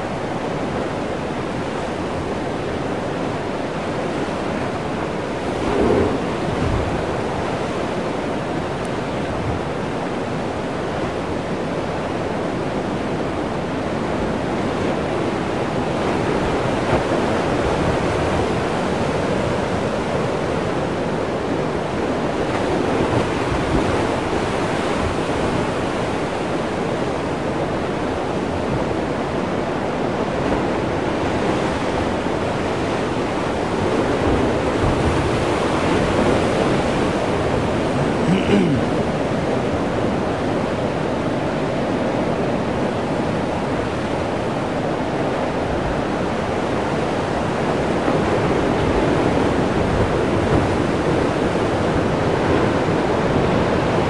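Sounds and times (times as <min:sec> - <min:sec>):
surf crashing through rocks: 0:04.1 - 0:09.7.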